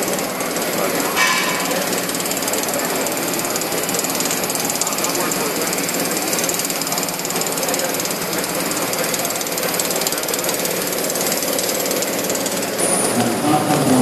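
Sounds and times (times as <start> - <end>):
welder rattling buzz: 0.0 - 14.0.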